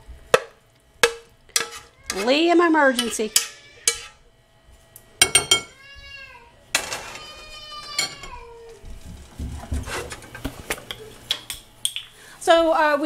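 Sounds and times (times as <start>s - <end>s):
baby crying: 3.0s - 4.2s, 5.5s - 8.9s
dishes clattering: 5.2s - 5.8s, 6.8s - 8.5s.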